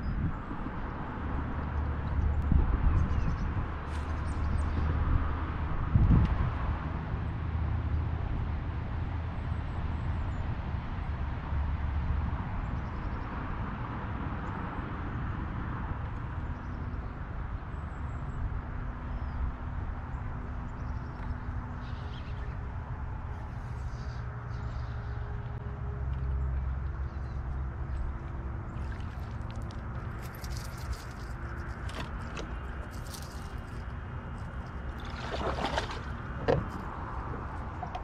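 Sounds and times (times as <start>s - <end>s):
wind buffeting microphone: 0.0s - 7.3s.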